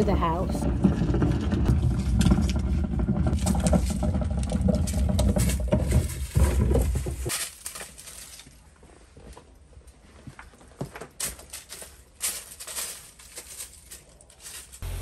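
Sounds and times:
bin wheels rumbling on concrete: 0:00.0 - 0:08.2
plastic bin rattling: 0:00.2 - 0:08.6, 0:10.7 - 0:14.8.

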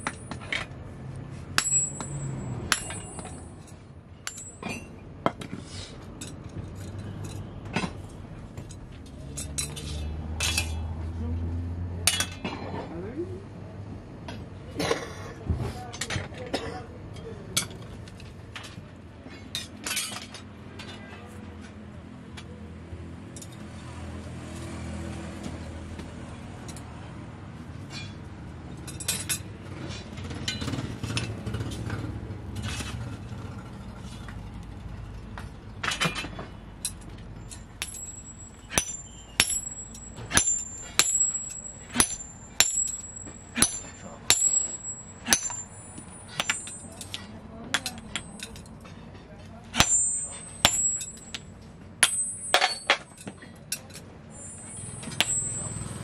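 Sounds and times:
metal clinks: 0:00.0 - 0:00.7, 0:01.6 - 0:05.0, 0:35.4 - 0:49.0, 0:49.8 - 0:56.0
hammer ringing on anvil: 0:01.6 - 0:03.5, 0:36.8 - 0:47.2, 0:49.8 - 0:53.1, 0:54.4 - 0:56.0
coal forge rumbling: 0:37.4 - 0:46.8.

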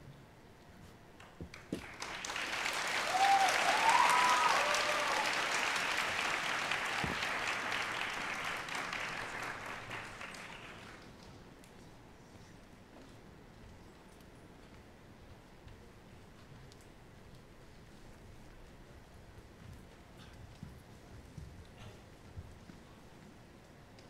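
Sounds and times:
audience applauding: 0:01.2 - 0:11.3.

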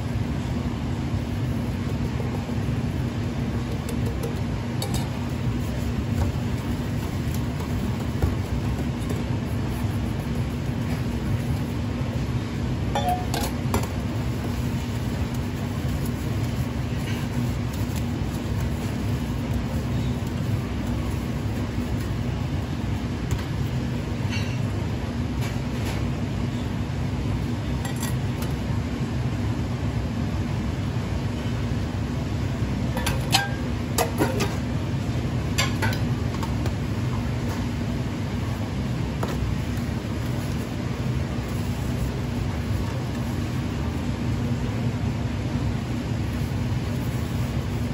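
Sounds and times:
ventilation fan hum: 0:00.0 - 0:47.9
metal pans clinking: 0:13.0 - 0:13.6.

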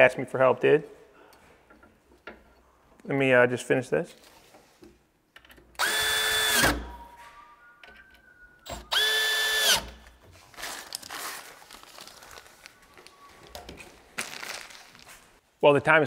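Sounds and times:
cordless drill running: 0:05.8 - 0:06.8, 0:08.9 - 0:09.9
plastic crinkling: 0:10.4 - 0:15.4.

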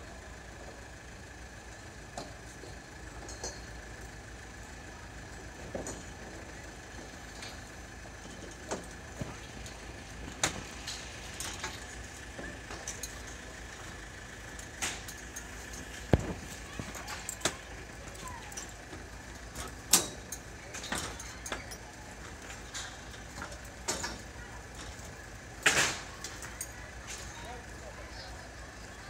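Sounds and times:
crane diesel engine with whine: 0:00.0 - 0:29.0
sharp knocks and clanks: 0:14.5 - 0:21.8.

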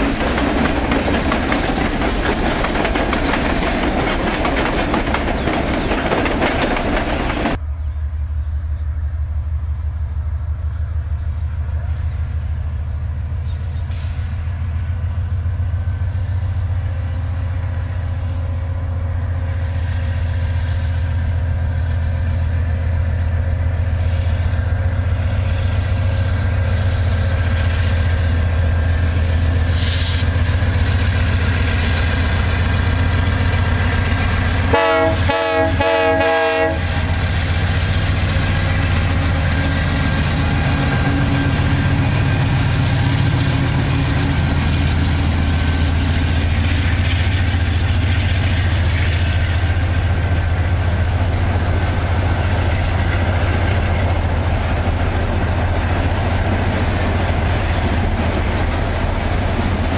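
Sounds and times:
locomotive engine drone: 0:00.0 - 0:59.9
locomotive air horn blasts: 0:34.7 - 0:37.2.

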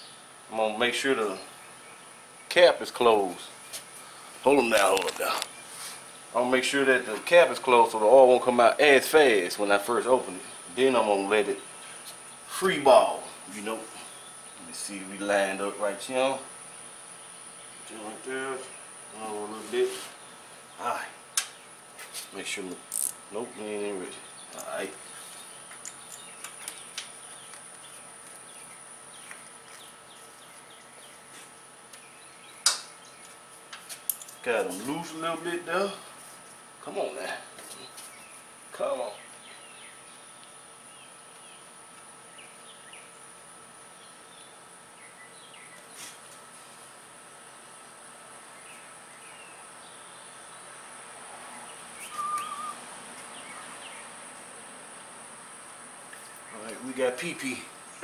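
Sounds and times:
insects droning: 0:00.0 - 0:58.0
bird chirping: 0:23.4 - 0:31.4, 0:32.0 - 0:33.4, 0:39.1 - 0:41.7, 0:48.5 - 0:50.7, 0:51.4 - 0:54.2
bird chirps: 0:51.5 - 0:54.1.

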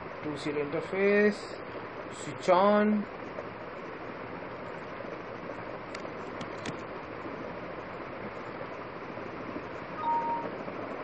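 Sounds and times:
background hiss: 0:06.9 - 0:11.0.

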